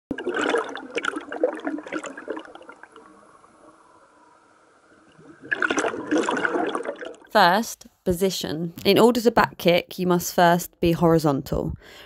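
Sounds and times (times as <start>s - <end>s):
air bubbling underwater: 0.1s - 3.2s, 5.1s - 7.3s.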